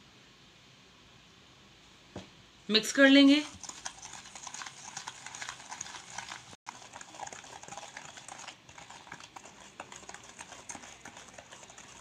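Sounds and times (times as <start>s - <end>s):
whisk scraping a metal bowl: 3.4s - 12.0s.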